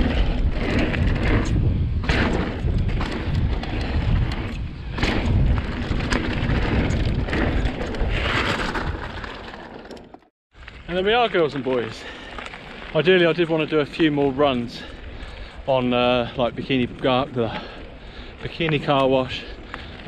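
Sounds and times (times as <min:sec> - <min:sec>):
wind rumble on microphone: 0:00.0 - 0:09.5, 0:13.7 - 0:20.0
bike knocking over bumps: 0:00.0 - 0:10.2
tyres crunching on loose dirt: 0:00.0 - 0:20.0.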